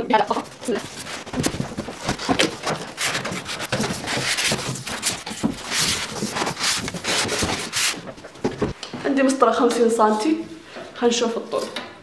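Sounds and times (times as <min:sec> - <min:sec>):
foam and cardboard scraping: 0:00.2 - 0:08.8.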